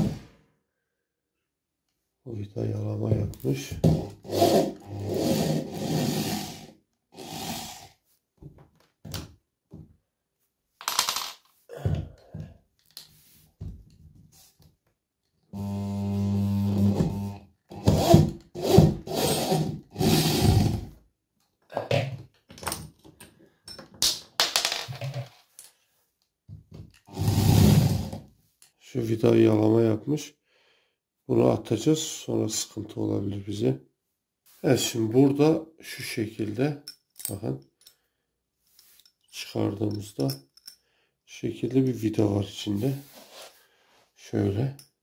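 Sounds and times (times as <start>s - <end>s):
cordless drill running: 4.2s - 7.8s, 15.6s - 20.8s.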